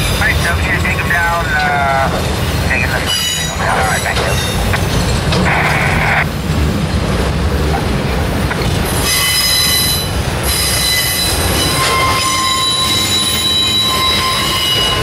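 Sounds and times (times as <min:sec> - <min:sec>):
train wheels rumbling on rail: 0:00.0 - 0:15.0
high-pitched wheel squeal: 0:09.0 - 0:15.0.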